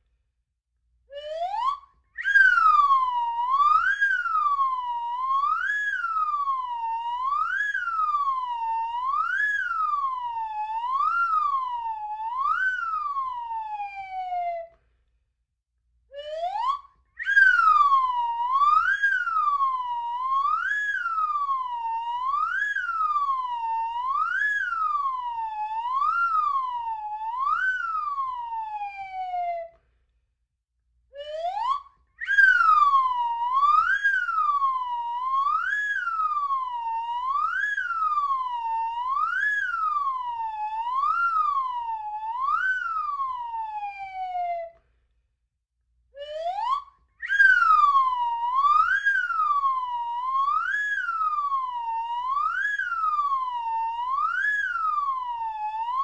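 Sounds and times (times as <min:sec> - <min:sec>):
slide whistle swooping: 0:01.2 - 0:06.5, 0:16.2 - 0:23.5, 0:31.2 - 0:38.4, 0:46.2 - 0:51.7.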